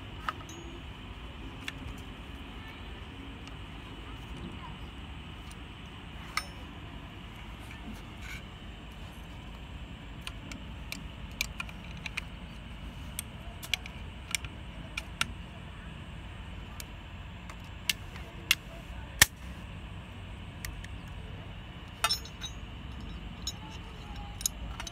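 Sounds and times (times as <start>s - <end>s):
low background rumble: 0.0s - 24.9s
rifle parts clicking: 10.2s - 12.4s, 13.1s - 15.4s, 22.0s - 24.9s.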